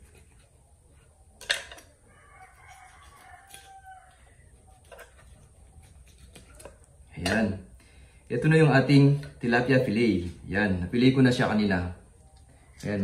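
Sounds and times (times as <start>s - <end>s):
rooster crowing: 2.0s - 4.5s.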